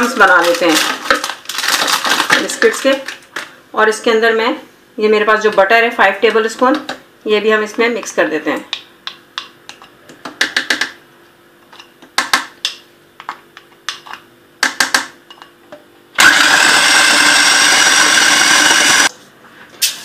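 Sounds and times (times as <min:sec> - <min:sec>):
food processor grinding: 0:00.4 - 0:02.4, 0:16.2 - 0:19.1.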